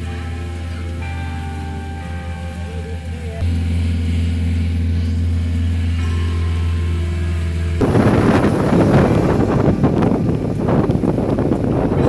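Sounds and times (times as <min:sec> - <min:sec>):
car interior drone: 0:00.0 - 0:12.0
road noise: 0:00.0 - 0:12.0
wind buffeting microphone: 0:07.6 - 0:12.0.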